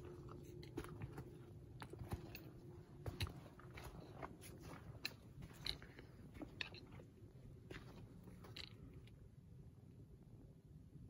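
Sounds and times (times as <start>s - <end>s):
footsteps on forest trail: 0.0s - 8.7s.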